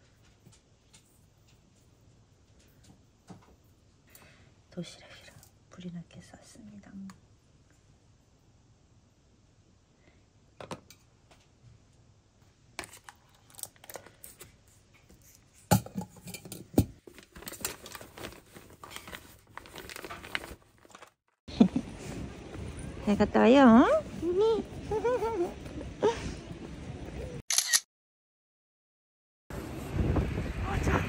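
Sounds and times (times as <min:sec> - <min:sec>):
fabric rustling: 0:17.0 - 0:21.2.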